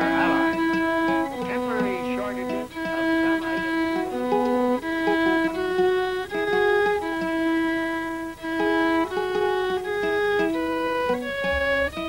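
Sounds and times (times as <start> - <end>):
short plucked notes: 0.0 - 2.9
bowed violin tune: 0.0 - 12.0.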